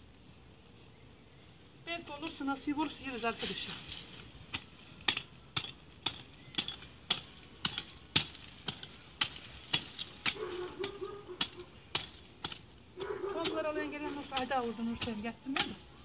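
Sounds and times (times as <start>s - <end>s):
hand hoe chopping hard soil: 3.4s - 15.9s.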